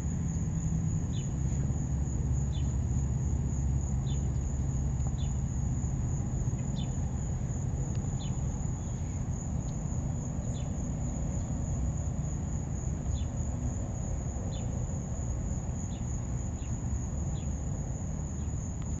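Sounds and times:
low steady rumble: 0:00.0 - 0:19.0
insect trilling: 0:02.4 - 0:17.6.

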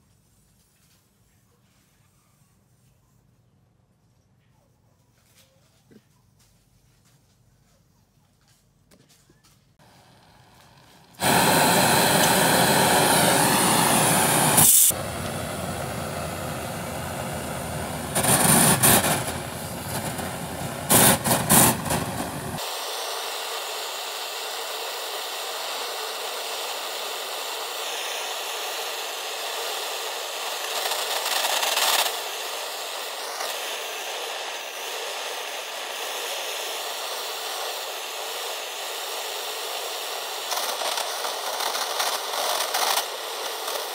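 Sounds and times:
blowtorch flame hissing: 0:09.8 - 0:43.9.

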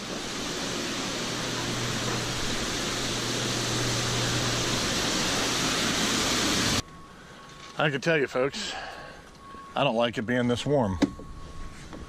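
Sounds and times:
water rushing in tanks: 0:00.0 - 0:06.8
low hum: 0:00.0 - 0:12.0.

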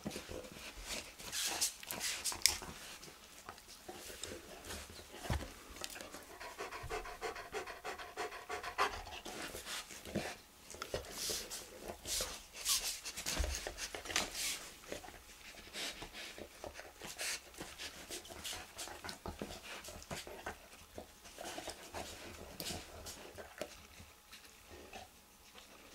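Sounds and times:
panting: 0:06.1 - 0:09.6.

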